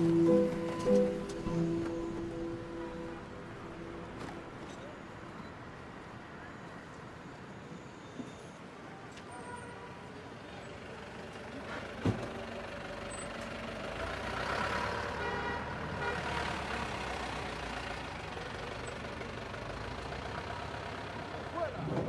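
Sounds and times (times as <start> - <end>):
truck engine passing: 0.0 - 4.9, 11.5 - 22.0
street traffic: 0.0 - 22.0.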